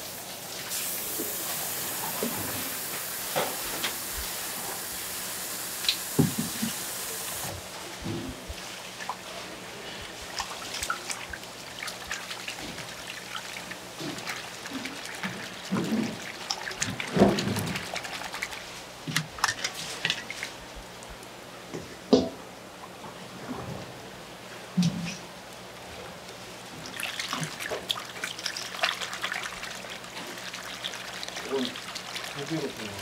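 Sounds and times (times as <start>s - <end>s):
tap water running into steel bowl: 5.8s - 7.6s, 10.2s - 20.5s, 26.8s - 33.0s
hands sloshing in water: 26.8s - 33.0s.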